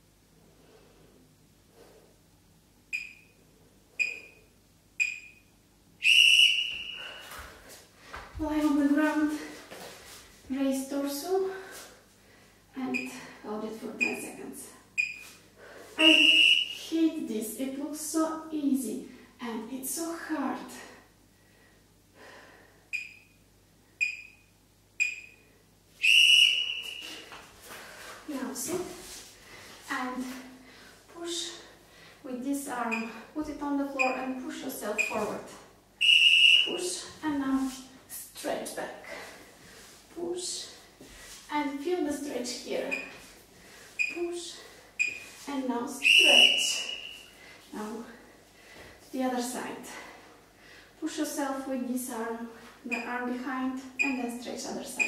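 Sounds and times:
long timer beep: 3.0s - 3.3s, 4.0s - 4.4s, 5.0s - 5.4s, 15.0s - 15.2s, 23.0s - 23.4s, 24.0s - 25.5s, 34.0s - 34.3s, 35.0s - 35.3s, 45.0s - 45.2s
short high timer beeps: 4.0s - 4.4s, 5.0s - 5.4s, 15.0s - 15.2s, 23.0s - 23.3s, 24.0s - 24.4s, 25.0s - 25.4s
long loud beep: 16.0s - 16.8s, 36.0s - 36.8s, 46.0s - 47.2s
short high electronic beeps: 25.0s - 25.4s.

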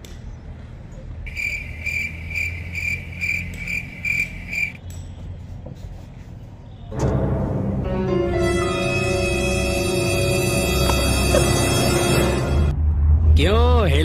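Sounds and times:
insect chirping: 1.3s - 4.8s.

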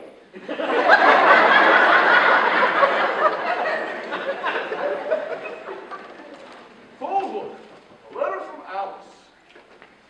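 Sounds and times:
audience laughing: 0.4s - 7.0s.

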